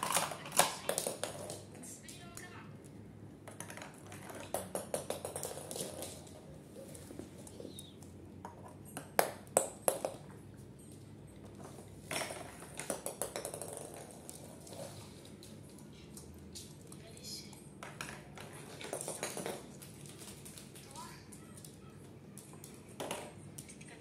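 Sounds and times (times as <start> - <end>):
plastic balls clattering down ramp: 0.0 - 1.8, 3.4 - 6.5, 12.1 - 15.6, 17.8 - 21.8, 22.4 - 23.6
balls bouncing on wooden floor: 0.0 - 16.8, 17.5 - 23.8.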